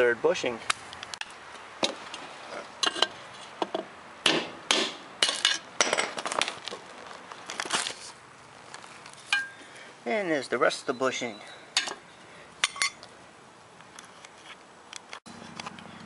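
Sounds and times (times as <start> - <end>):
hammer striking steel bar: 4.2 - 5.6.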